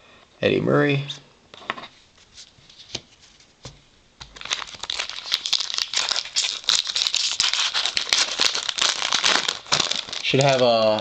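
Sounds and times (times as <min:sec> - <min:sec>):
foil wrapper crinkling: 0:04.2 - 0:11.0.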